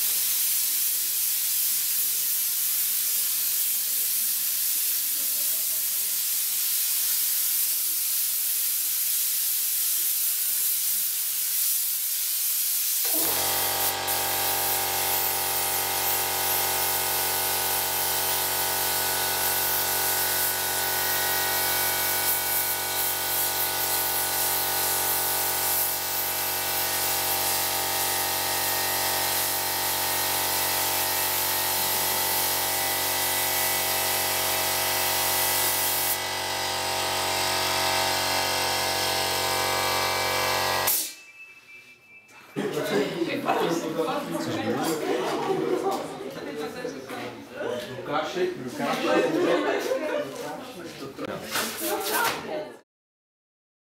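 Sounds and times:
spray gun hissing: 0:00.0 - 0:41.1
air compressor hum: 0:13.0 - 0:41.1.

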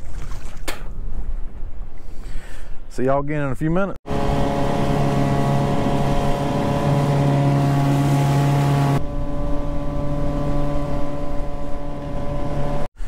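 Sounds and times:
outboard motor running: 0:04.0 - 0:12.9
wind and water rushing: 0:04.1 - 0:12.9.

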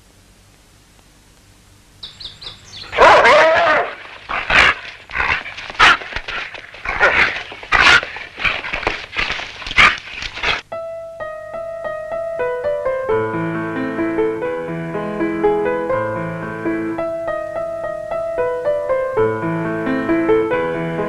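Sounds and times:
dog barking and yelping: 0:02.2 - 0:10.6.

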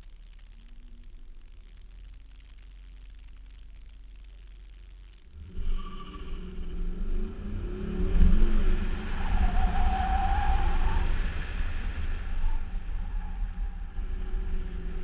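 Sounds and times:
high squeal: 0:05.4 - 0:15.0
wind rumble on microphone: 0:05.4 - 0:15.0.

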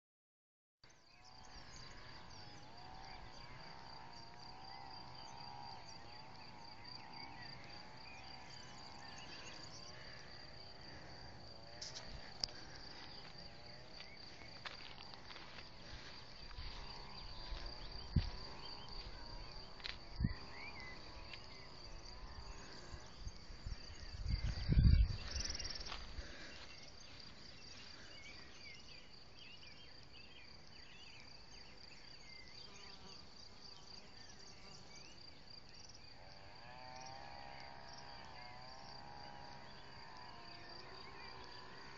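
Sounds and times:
crickets trilling: 0:00.9 - 0:41.9.

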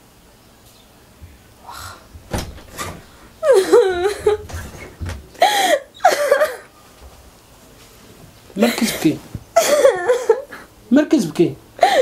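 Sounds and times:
woman crying: 0:03.4 - 0:04.6, 0:05.4 - 0:06.7, 0:09.6 - 0:10.7, 0:11.8 - 0:12.0.

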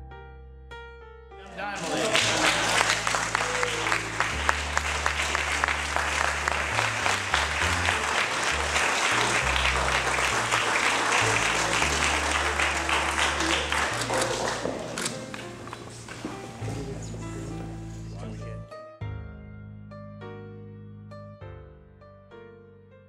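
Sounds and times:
crowd applauding: 0:01.4 - 0:17.2.

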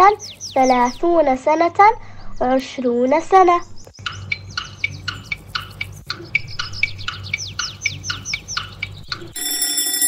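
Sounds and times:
alarm-clock bell ringing: 0:09.4 - 0:10.0.

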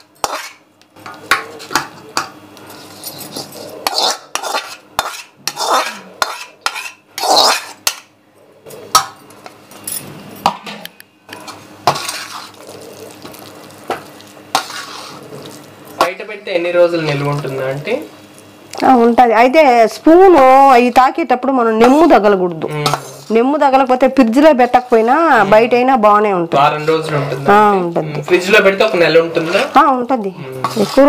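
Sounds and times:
spoon scraping a bowl: 0:00.0 - 0:00.6, 0:02.7 - 0:08.1, 0:11.4 - 0:15.6, 0:22.8 - 0:23.4, 0:30.5 - 0:31.0.

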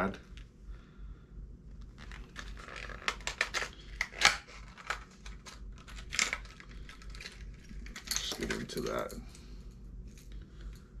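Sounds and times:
packaging crinkling and clicking: 0:01.8 - 0:09.1.

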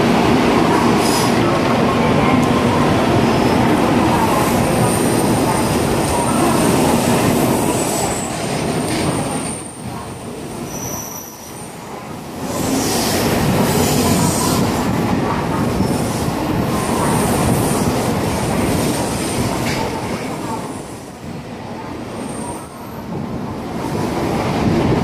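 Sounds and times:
high-pitched wheel squeals: 0:10.7 - 0:11.6.

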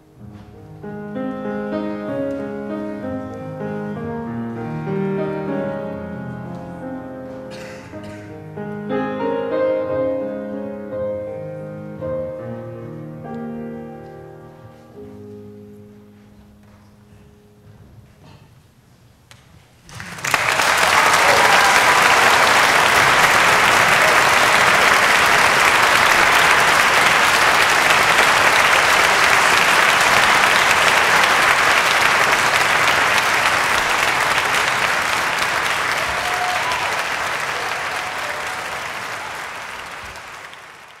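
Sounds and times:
audience applause: 0:19.9 - 0:41.0.

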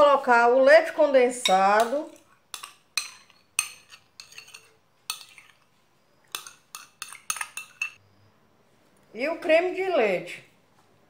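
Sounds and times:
metal spoon clinking on glass bowl: 0:01.4 - 0:05.7, 0:06.3 - 0:08.0.

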